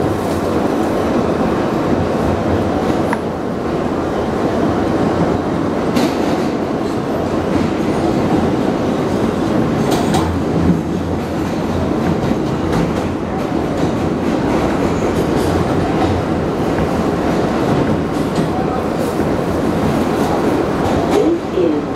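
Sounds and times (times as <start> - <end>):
subway train rumbling in tunnel: 0.0 - 21.9.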